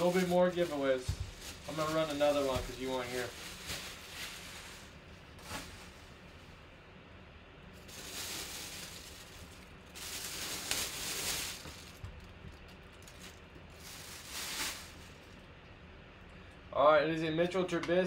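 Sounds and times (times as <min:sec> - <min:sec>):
plastic bag crinkling: 0:00.0 - 0:06.0, 0:07.8 - 0:15.4
faint steady hum: 0:00.0 - 0:18.0.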